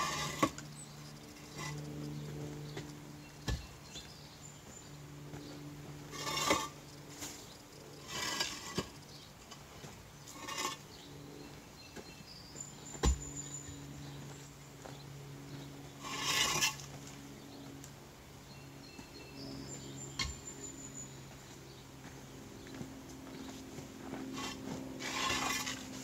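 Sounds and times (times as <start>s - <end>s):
gritty scrapes: 0.0s - 0.6s, 1.2s - 4.1s, 5.9s - 11.1s, 15.9s - 17.1s, 23.4s - 26.0s.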